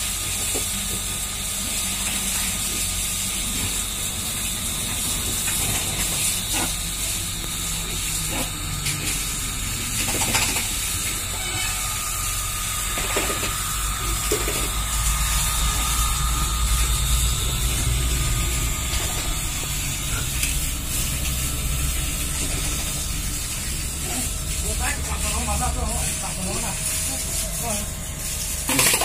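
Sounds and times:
electric water pump running: 0.0 - 29.0.

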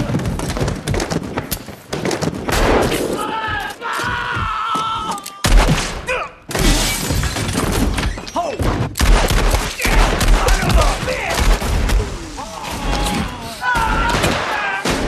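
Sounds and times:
loud gunshots: 1.9 - 3.5, 5.4 - 7.0, 8.9 - 12.4, 13.8 - 15.0
voices shouting: 3.1 - 5.5, 12.1 - 15.0.

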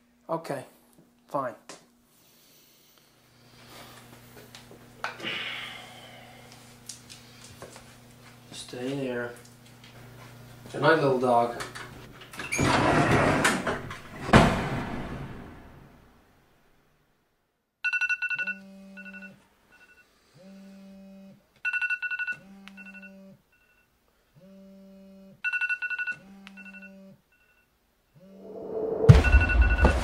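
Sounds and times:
door shutting: 11.7 - 15.7
smartphone alarm beeps: 17.8 - 20.0, 21.6 - 23.9, 25.4 - 28.4, 29.2 - 30.0.

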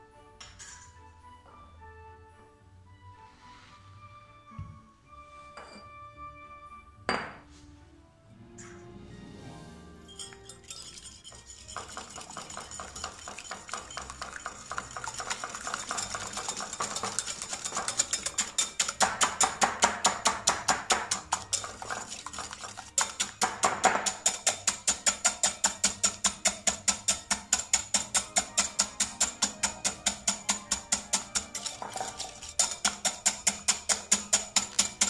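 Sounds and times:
whisk clicking against glass bowl: 10.2 - 35.0.

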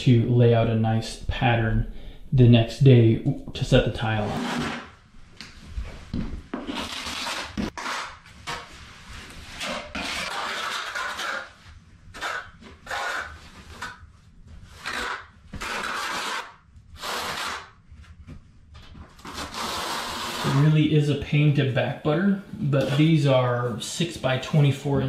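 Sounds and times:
trowel scraping mortar on floor: 4.2 - 5.0, 6.5 - 14.0, 14.7 - 17.8, 19.2 - 20.7.

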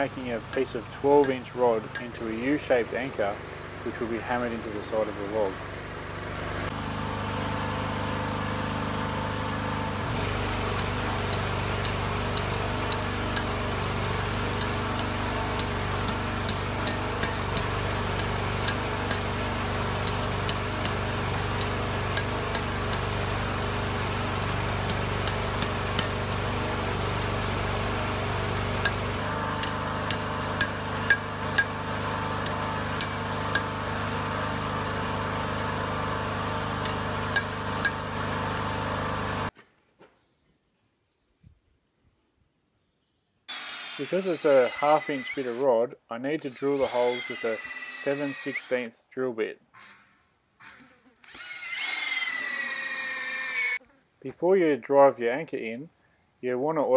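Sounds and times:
hammer striking hot steel on anvil: 0.5 - 2.4, 14.2 - 19.3, 20.0 - 23.0, 24.8 - 26.3, 28.8 - 31.8, 32.4 - 33.7, 36.8 - 38.1
steady machine hum: 4.8 - 39.5.

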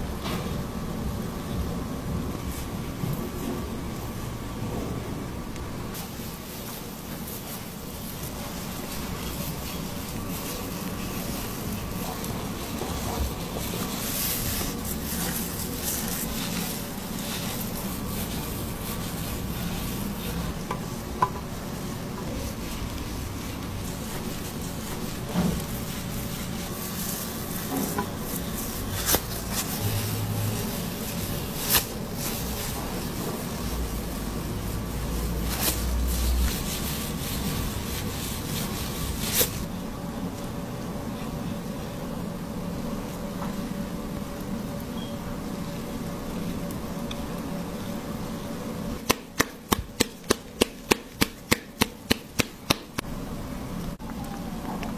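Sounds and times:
gloved fingers rubbing damp hair: 5.9 - 39.7, 49.0 - 53.1.

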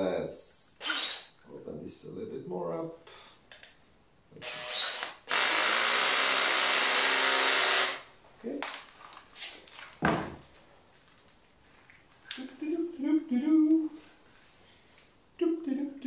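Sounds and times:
handheld power tool running: 0.8 - 1.3, 4.4 - 8.1.

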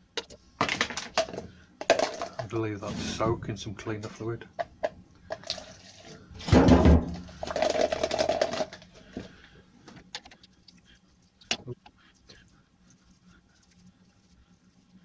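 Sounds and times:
liquid glugging into a cup: 7.2 - 8.8.

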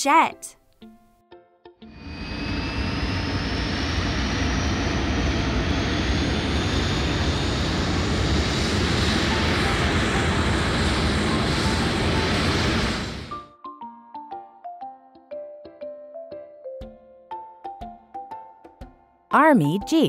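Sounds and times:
jet engine with high whine: 1.9 - 13.4.

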